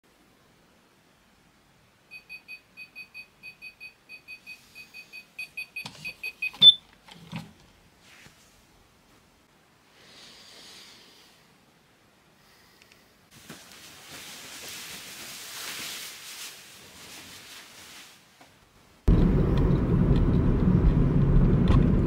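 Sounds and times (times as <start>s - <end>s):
bedding rustling: 13.3s - 18.6s.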